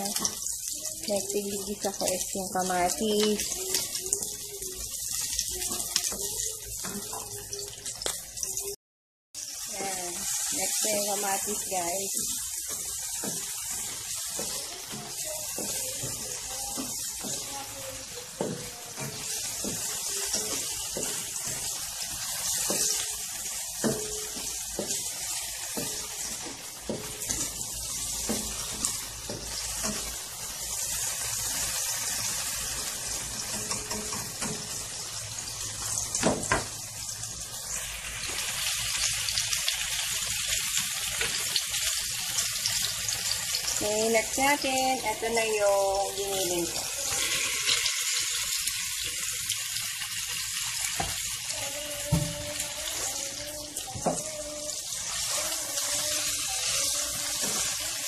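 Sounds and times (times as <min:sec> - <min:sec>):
food sizzling in oil: 0:00.0 - 0:08.8, 0:09.4 - 0:58.0
spatula scraping and knocking pan: 0:09.8 - 0:30.3, 0:31.0 - 0:34.9.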